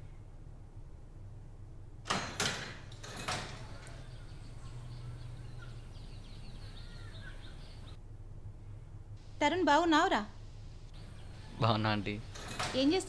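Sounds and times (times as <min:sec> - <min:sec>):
door latch clacks: 0:02.1 - 0:04.2.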